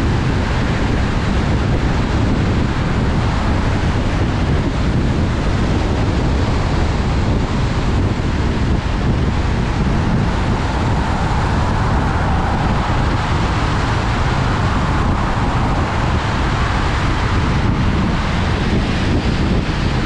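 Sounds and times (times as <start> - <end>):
tyre and wind rumble: 0.0 - 20.0.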